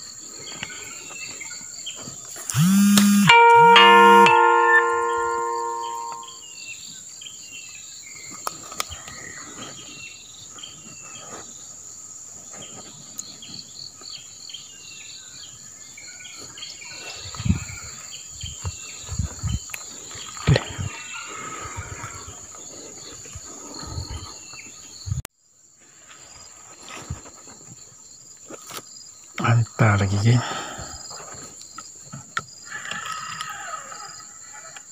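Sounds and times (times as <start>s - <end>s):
insects trilling and buzzing: 26.1s - 34.9s.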